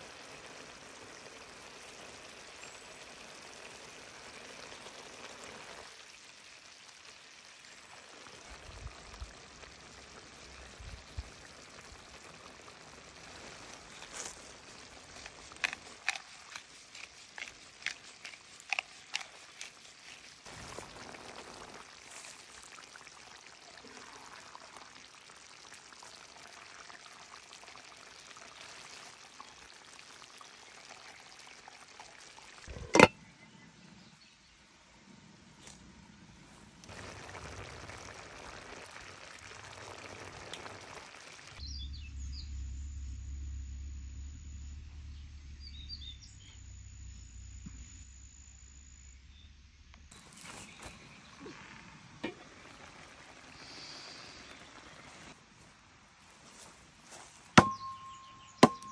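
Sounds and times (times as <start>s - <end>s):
stew bubbling in a pot: 0.0s - 33.1s, 36.8s - 41.6s, 50.1s - 55.9s
sharp knock: 57.6s - 58.9s.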